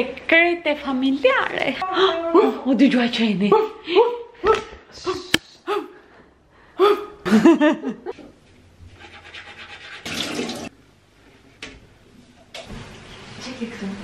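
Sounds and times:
toothbrush scrubbing teeth: 0:09.0 - 0:10.1
running water: 0:10.0 - 0:10.7.

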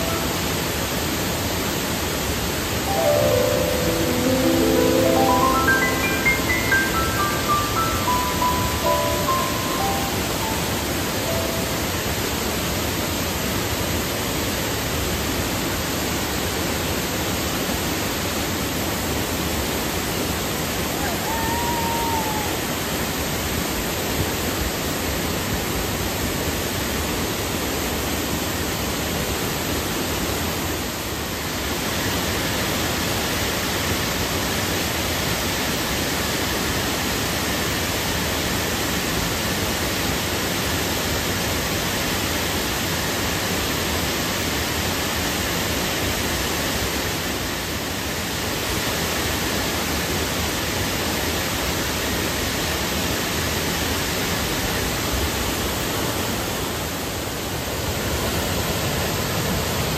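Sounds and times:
waterfall rushing: 0:00.0 - 0:27.2.

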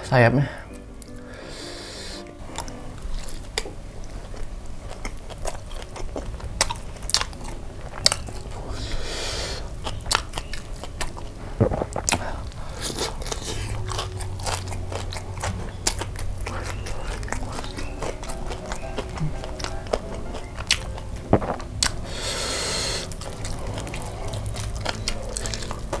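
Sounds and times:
crunches of fried coating: 0:00.9 - 0:26.0
chewing close to microphone: 0:01.0 - 0:26.0
fried chicken being torn: 0:20.6 - 0:26.0.

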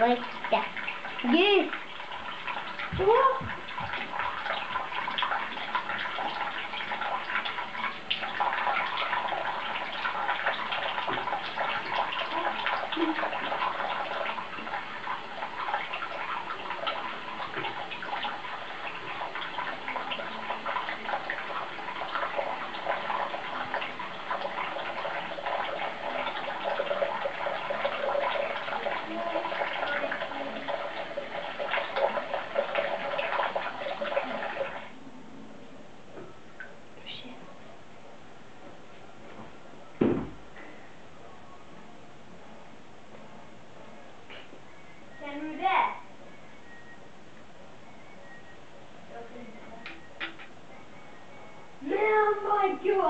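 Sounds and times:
running water with crackle: 0:00.0 - 0:35.0, 0:51.8 - 0:53.0.

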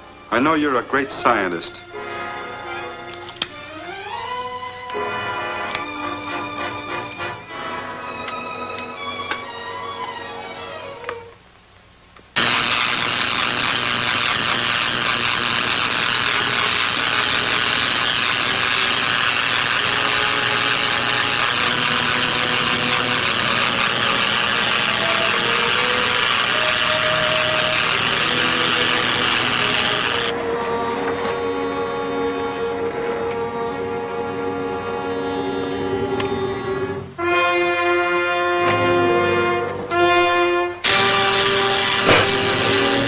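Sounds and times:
electric arc crackling and buzzing: 0:12.3 - 0:31.0, 0:40.2 - 0:43.0.

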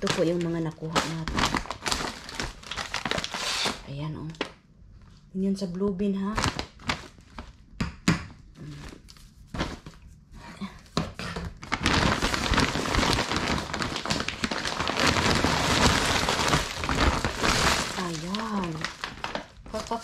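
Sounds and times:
plastic packaging crinkling: 0:00.0 - 0:04.5, 0:06.3 - 0:07.7, 0:10.6 - 0:20.0.

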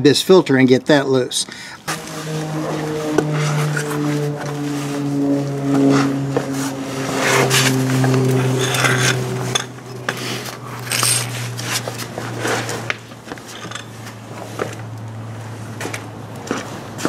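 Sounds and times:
low steady hum: 0:01.4 - 0:15.2
metal tools clinking and scraping: 0:08.5 - 0:12.0, 0:13.5 - 0:14.2.

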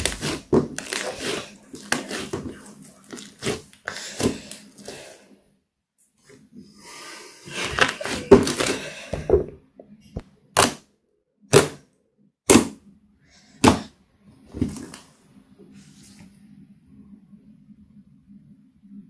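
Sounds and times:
slime crackling: 0:00.0 - 0:05.0.

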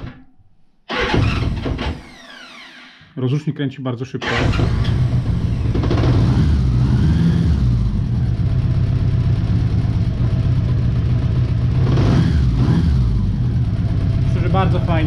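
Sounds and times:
motorcycle engine running: 0:04.5 - 0:15.0.

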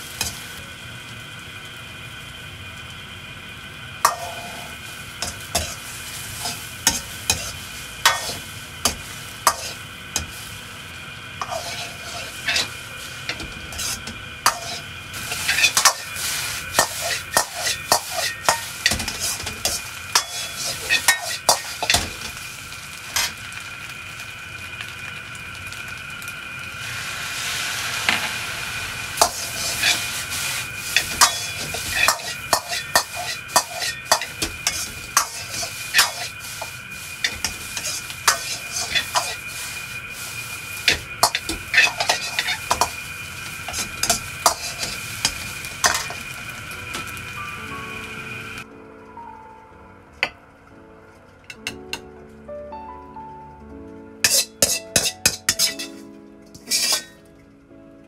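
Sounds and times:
food sizzling: 0:00.0 - 0:49.6, 0:53.7 - 0:57.7
metal ladle clanking on wok: 0:54.3 - 0:56.0, 0:56.6 - 0:57.2.

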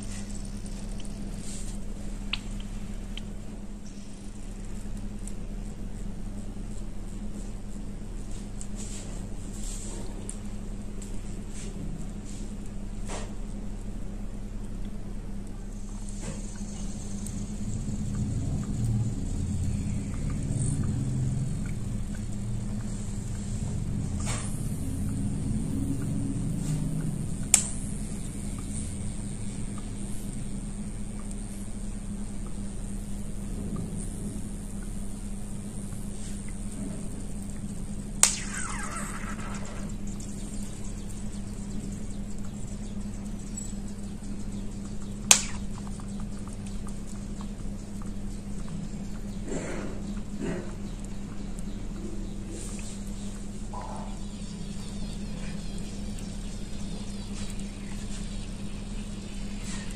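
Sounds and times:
faint ticks: 0:00.0 - 0:06.9, 0:14.6 - 0:38.4, 0:39.4 - 0:53.9
low rumbling hum: 0:00.0 - 0:59.9
sharp snap: 0:27.4 - 0:27.8, 0:38.2 - 0:39.9, 0:45.3 - 0:45.9.

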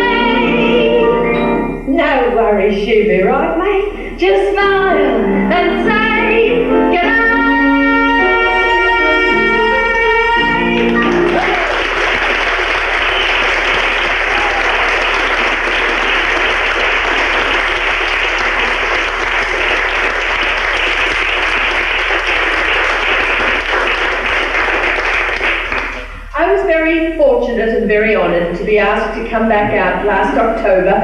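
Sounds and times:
music accompaniment note: 0:05.0 - 0:11.7
audience applauding: 0:10.4 - 0:26.3.

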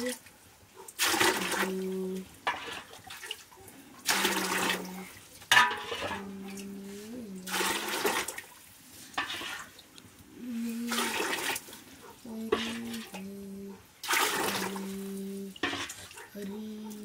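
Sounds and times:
water pouring into metal vessels: 0:00.9 - 0:17.0
low steady tone: 0:14.7 - 0:15.6.

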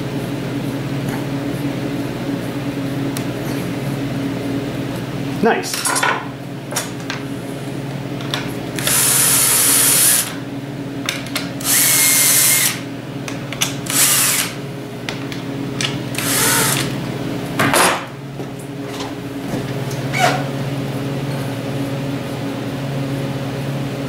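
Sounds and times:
power drill drilling into wood: 0:08.8 - 0:10.3, 0:11.6 - 0:12.8, 0:13.9 - 0:14.6, 0:16.2 - 0:16.9.

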